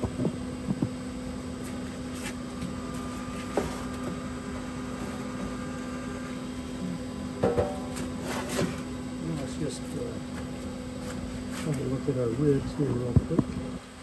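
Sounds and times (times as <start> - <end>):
electric fan hum: 0.0 - 14.0.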